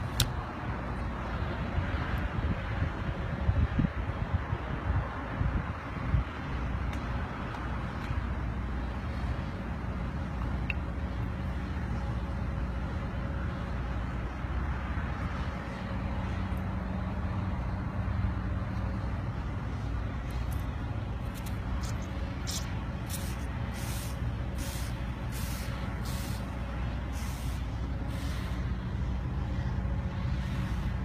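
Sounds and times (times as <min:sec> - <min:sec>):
low traffic rumble: 0:00.0 - 0:31.0
water mist hissing spurts: 0:21.4 - 0:28.7.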